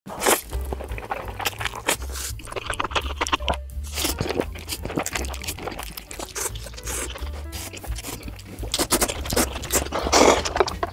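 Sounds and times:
slurping and chewing noodles: 0:00.1 - 0:10.9
wet mouth noises and crunches: 0:00.1 - 0:10.9
background music with bass line: 0:00.2 - 0:10.9.

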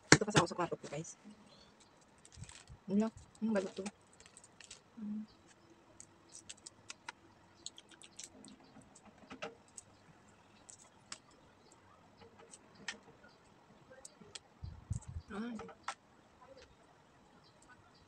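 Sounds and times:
egg shell cracking: 0:06.0 - 0:08.6.

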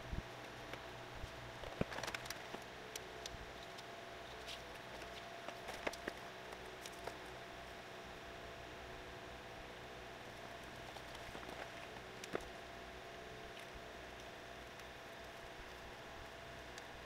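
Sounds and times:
faint hum: 0:00.0 - 0:17.0
wire and plastic clicking and rustling: 0:01.6 - 0:07.3, 0:10.6 - 0:12.6.

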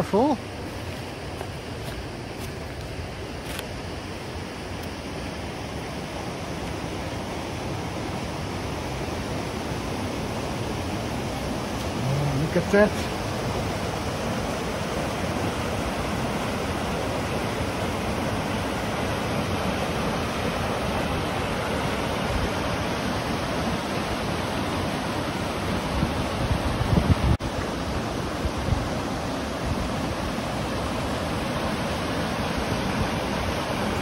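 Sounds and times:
water rushing over rocks: 0:00.0 - 0:34.0
wind bumps on microphone: 0:25.9 - 0:27.5.

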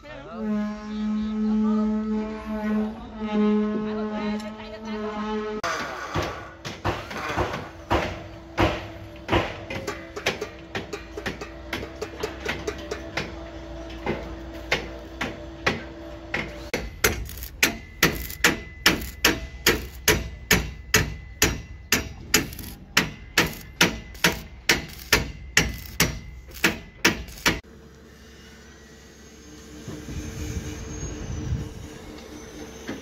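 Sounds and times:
hammer striking steel: 0:05.7 - 0:13.4, 0:14.0 - 0:27.6.

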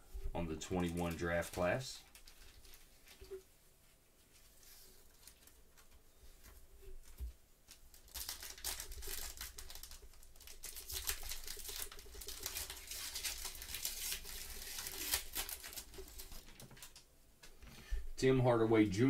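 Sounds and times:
foil wrapper crinkling and tearing: 0:07.7 - 0:17.0.

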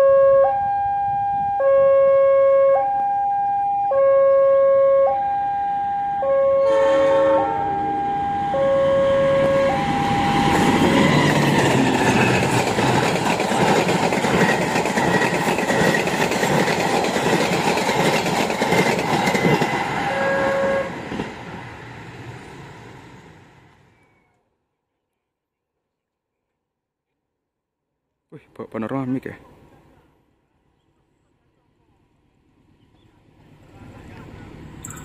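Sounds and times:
two-tone locomotive horn: 0:00.0 - 0:10.8, 0:19.7 - 0:21.2
train wheels clattering on rails: 0:10.5 - 0:20.3.

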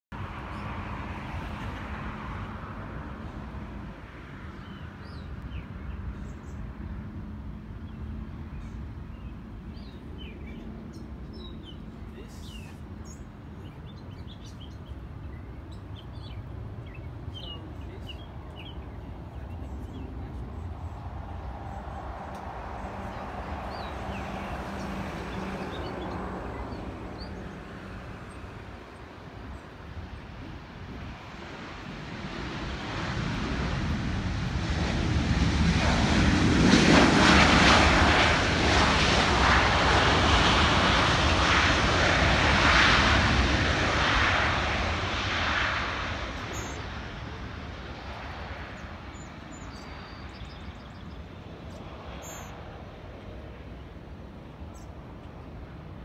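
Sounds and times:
distant jet engine rumble: 0:00.1 - 0:56.0
small birds chirping: 0:07.8 - 0:22.1, 0:22.7 - 0:30.3, 0:46.4 - 0:47.0, 0:48.7 - 0:52.6
broad rushing noise: 0:18.2 - 0:56.0.

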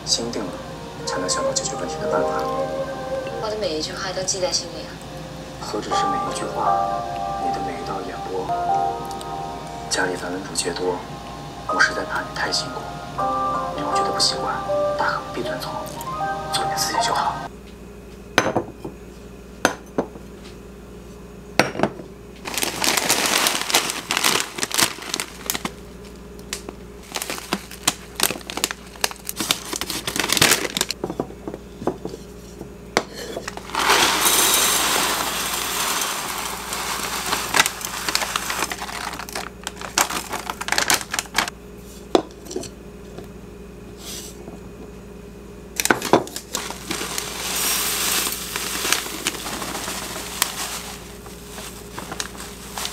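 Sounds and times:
tea leaves pouring into jar: 0:22.5 - 0:25.6, 0:33.6 - 0:41.5, 0:46.5 - 0:52.9
plastic bag crinkling: 0:22.5 - 0:31.0, 0:33.6 - 0:41.5, 0:45.9 - 0:52.9
glass jars clinking: 0:33.3 - 0:37.6.

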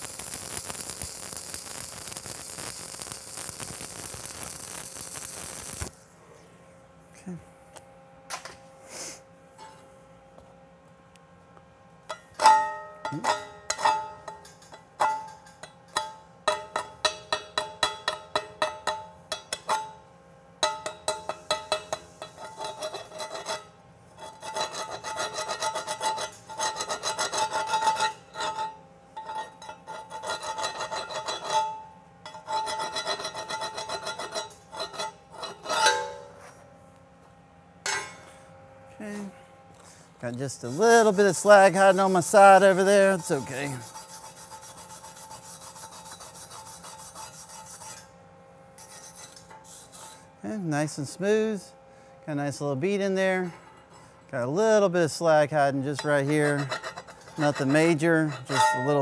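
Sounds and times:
wire brush scrubbing: 0:40.4 - 0:48.1, 0:48.8 - 0:50.2, 0:56.0 - 0:59.0
steel plate ringing: 0:56.0 - 0:59.0.

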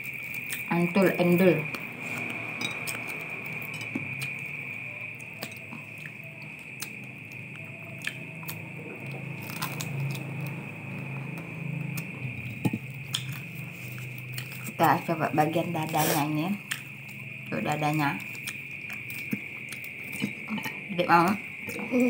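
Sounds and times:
person chewing crunchy food: 0:01.9 - 0:10.6, 0:11.4 - 0:14.8, 0:16.6 - 0:17.4, 0:18.3 - 0:20.8.

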